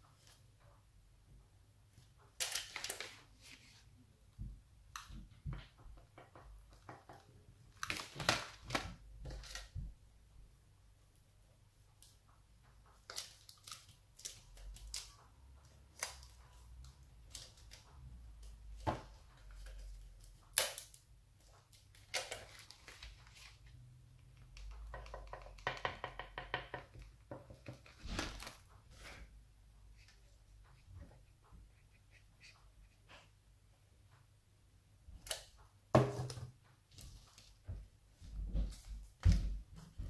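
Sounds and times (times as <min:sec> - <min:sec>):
light clicks and foil crinkles: 0:13.0 - 0:15.2, 0:21.7 - 0:23.7.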